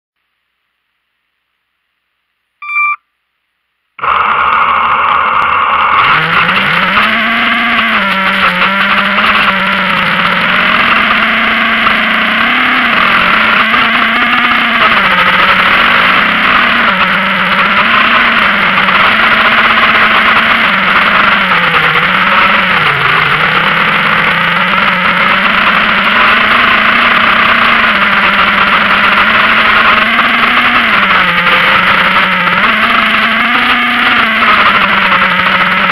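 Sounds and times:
short beep: 0:02.6 - 0:03.1
model aircraft motor and propeller: 0:04.0 - 0:35.9.

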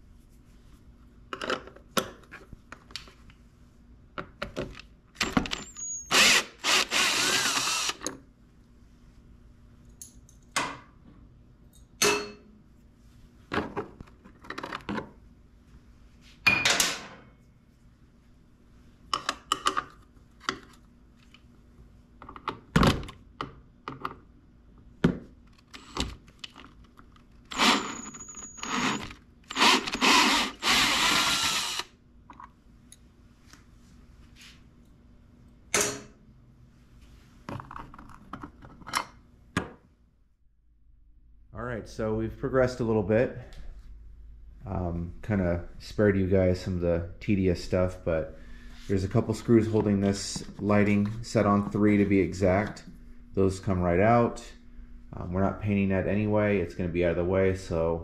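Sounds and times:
power drill running: 0:06.1 - 0:08.1, 0:27.5 - 0:31.9.

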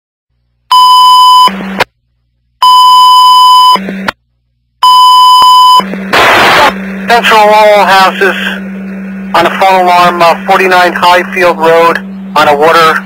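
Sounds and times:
high radio alert beeps: 0:00.7 - 0:01.6, 0:02.6 - 0:03.8, 0:04.8 - 0:06.8.

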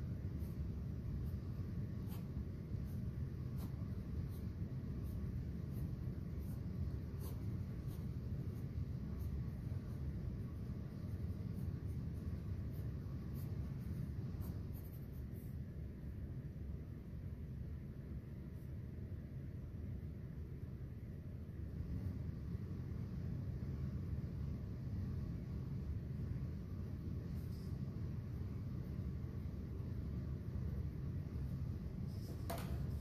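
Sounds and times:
low room hum: 0:00.0 - 0:33.0
pencil scratching on paper: 0:00.1 - 0:15.6.

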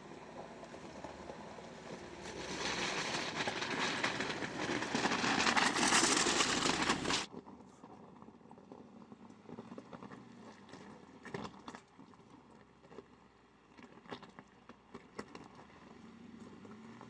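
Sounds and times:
tyres crunching over gravel: 0:00.0 - 0:07.3.

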